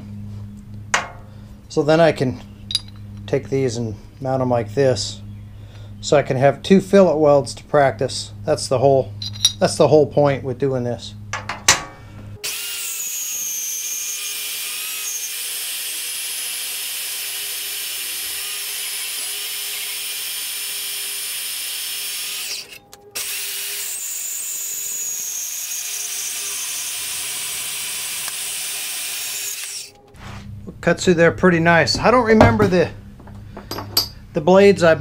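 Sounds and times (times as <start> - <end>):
bandsaw cutting steel: 12.4 - 30.0.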